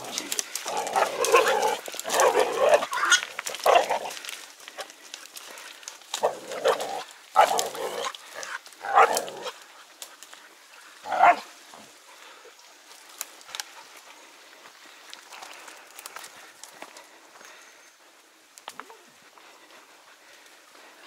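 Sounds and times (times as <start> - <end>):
dogs barking: 0.6 - 4.1, 6.2 - 9.6, 11.0 - 11.5.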